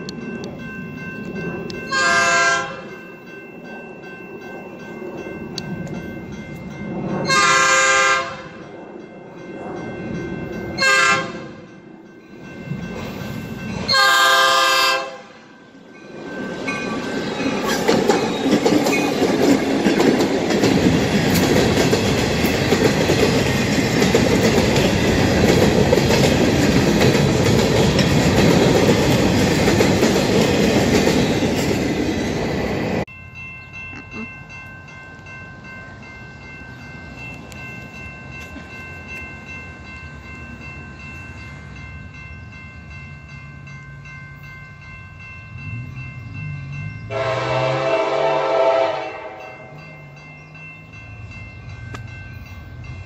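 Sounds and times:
diesel locomotive engine: 0.0 - 53.0
locomotive air horn blasts: 1.9 - 2.8, 7.3 - 8.5, 10.8 - 11.6, 13.9 - 15.4, 47.1 - 49.5
train wheels clattering over rails: 16.8 - 33.0.

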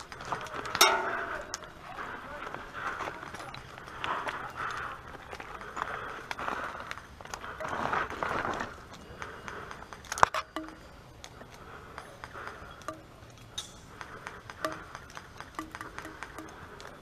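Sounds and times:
faint ring: 0.8 - 1.8
sharp clicks and knocks: 13.6 - 17.0.

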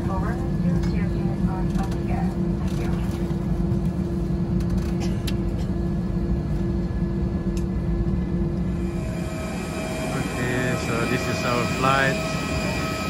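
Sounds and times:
airplane cabin drone: 0.0 - 13.0
constant hum: 0.0 - 13.0.

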